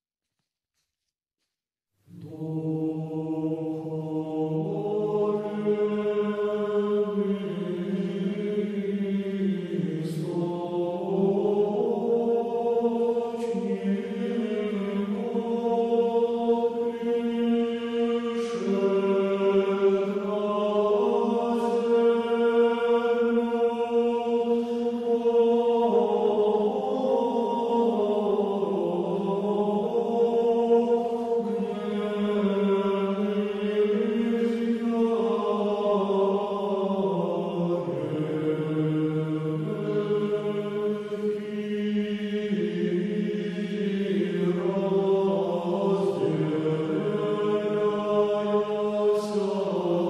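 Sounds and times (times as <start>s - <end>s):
voices chanting long notes: 2.1s - 50.0s.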